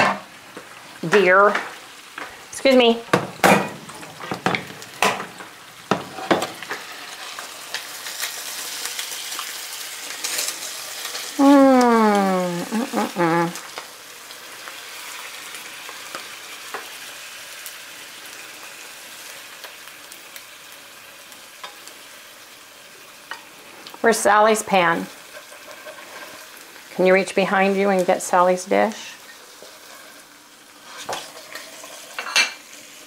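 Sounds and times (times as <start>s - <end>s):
eggs sizzling in a pan: 0.0s - 33.0s
spatula scraping a pan: 25.2s - 26.6s, 30.8s - 32.6s.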